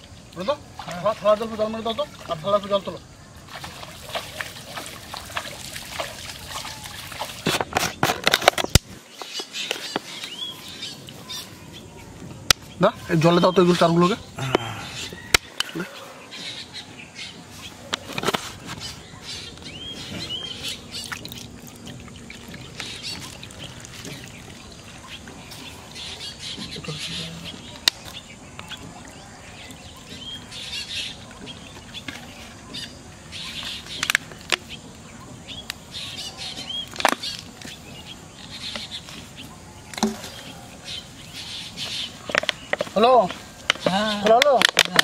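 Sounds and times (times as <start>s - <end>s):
outdoor background noise: 0.0s - 45.0s
bird chirps: 9.1s - 18.1s, 18.7s - 21.6s, 22.2s - 44.3s.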